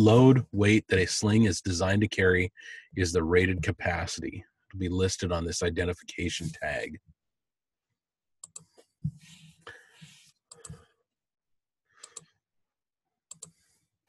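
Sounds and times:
computer mouse clicks: 8.4s - 8.8s, 10.5s - 10.8s, 12.0s - 12.3s, 13.3s - 13.6s.

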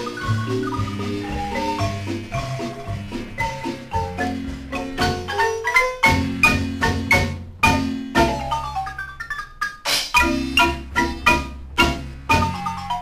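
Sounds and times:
marimba playing: 0.0s - 13.0s.

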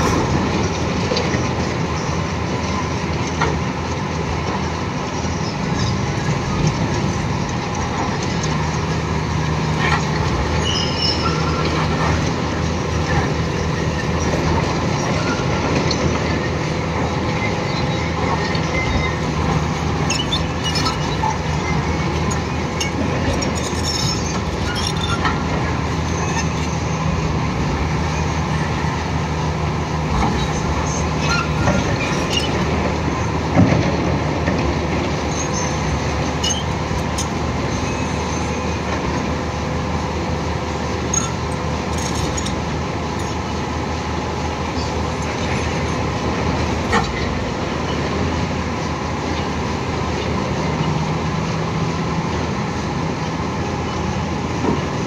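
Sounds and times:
excavator engine and hydraulics: 0.0s - 55.0s
stone clinking and scraping: 20.1s - 26.8s, 36.4s - 37.3s, 41.1s - 42.6s.

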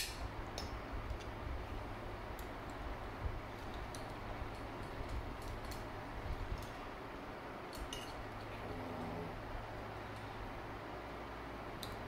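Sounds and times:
low hum: 8.1s - 12.0s.

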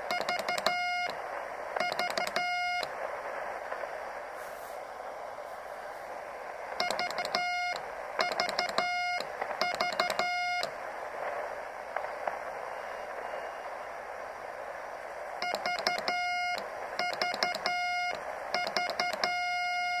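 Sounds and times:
receiver hiss: 0.0s - 20.0s
morse code sidetone beeps: 0.1s - 1.2s, 1.8s - 2.9s, 6.8s - 10.7s, 15.4s - 20.0s.

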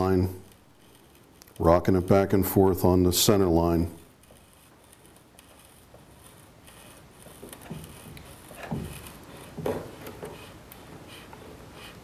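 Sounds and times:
saw blade scraping into wood: 3.7s - 12.0s.

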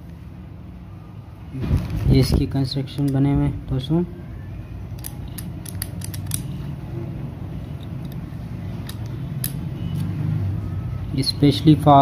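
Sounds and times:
small metal parts clicking: 5.0s - 6.6s.

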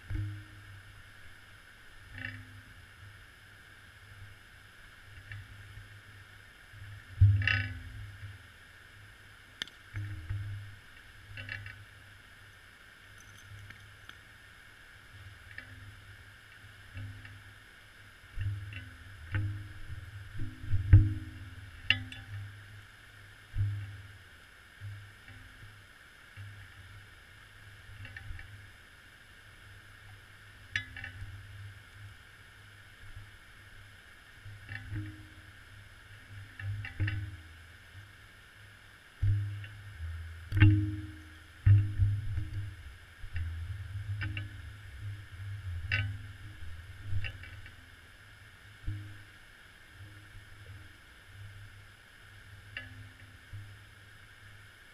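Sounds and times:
steady hiss: 0.0s - 54.9s
muffled low thumps: 39.2s - 47.3s.

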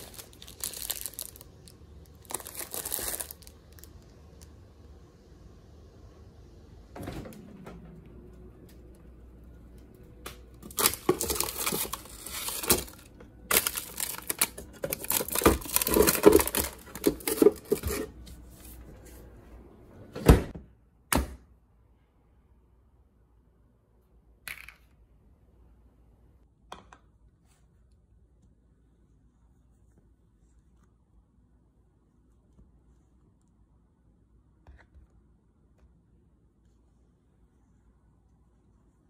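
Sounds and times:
plastic wrappers crinkling: 0.0s - 4.5s, 10.6s - 18.1s.

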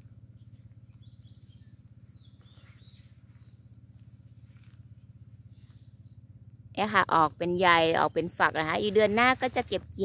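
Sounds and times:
pulsing low hum: 0.0s - 10.0s
faint bird chirps: 0.4s - 3.7s.

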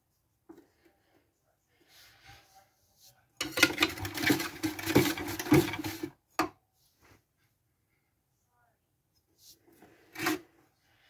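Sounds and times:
toy washing machine motor and rattle: 3.4s - 6.2s.

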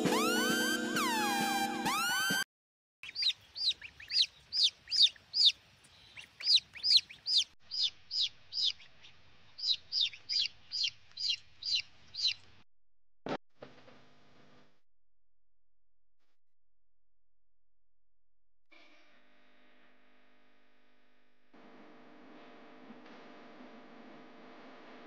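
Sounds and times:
chick peeping: 3.0s - 12.5s.

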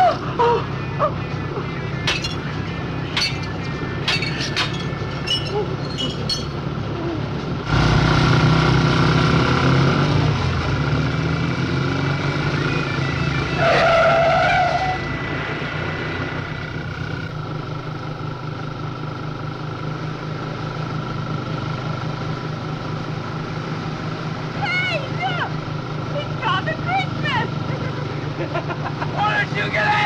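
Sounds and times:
motorcycle engines running: 0.0s - 30.0s
wavering high squeal: 3.2s - 6.6s, 12.7s - 16.5s.

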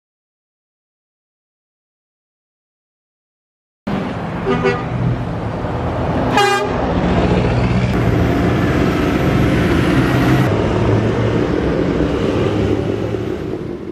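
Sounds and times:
tractor driving past: 6.8s - 13.9s
lorry driving past: 7.1s - 13.9s.

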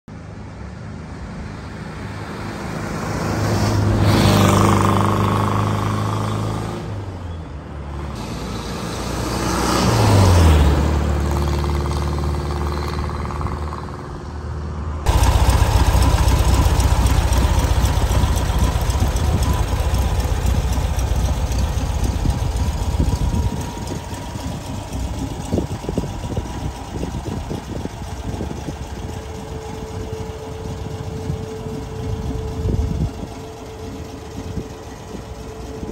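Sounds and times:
vehicles driving past: 0.1s - 35.9s
engine idling with thin whine: 15.1s - 35.9s.

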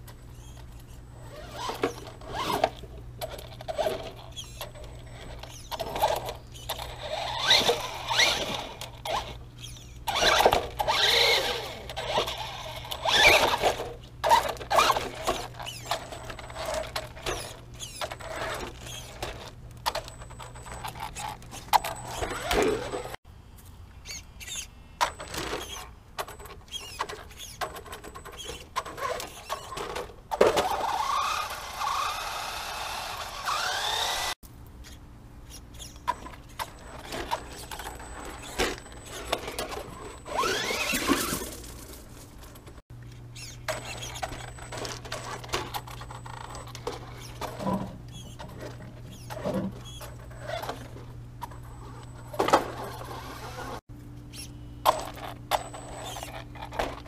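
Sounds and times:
electric motor whining: 6.6s - 16.9s, 30.6s - 34.4s, 37.7s - 41.4s, 51.8s - 53.8s.

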